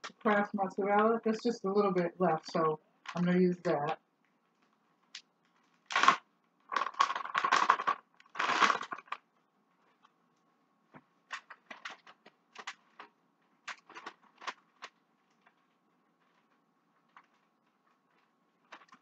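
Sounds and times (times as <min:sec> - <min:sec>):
plastic bag crinkling: 0:03.1 - 0:10.2, 0:11.2 - 0:19.0.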